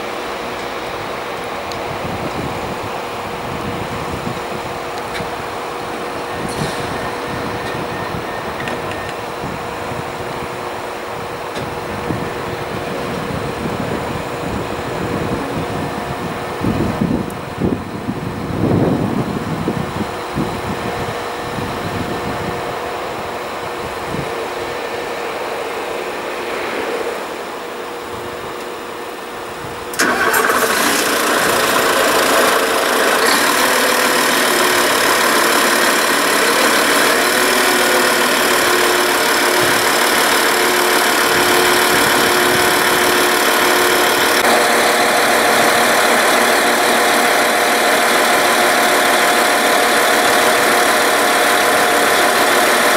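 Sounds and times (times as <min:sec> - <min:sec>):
loud machine running: 0:00.0 - 0:52.9
train machinery humming: 0:00.0 - 0:52.9.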